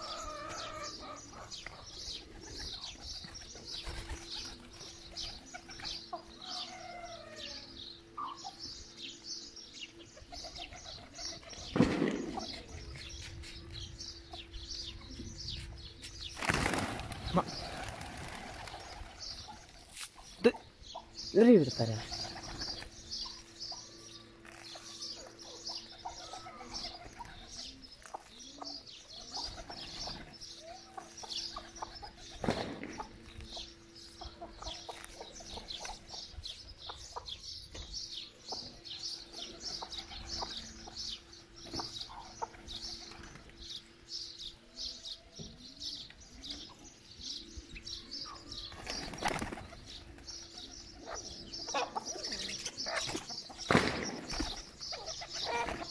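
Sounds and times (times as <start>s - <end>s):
chickens clucking: 0.0s - 9.2s, 21.9s - 44.6s, 45.3s - 55.9s
pigeons cooing: 0.0s - 55.9s
wings flapping: 3.0s - 5.9s, 16.3s - 19.9s, 48.7s - 51.1s, 52.9s - 55.9s.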